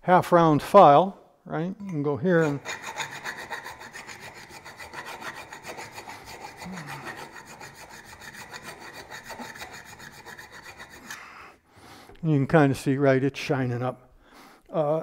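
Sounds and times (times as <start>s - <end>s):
hand file rasping on metal: 2.2s - 11.4s.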